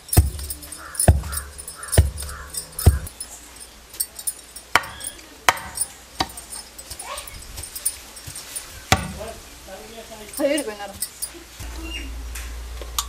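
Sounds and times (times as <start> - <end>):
pestle pounding in stone mortar: 0.0 - 3.2, 4.6 - 7.0, 7.6 - 9.2.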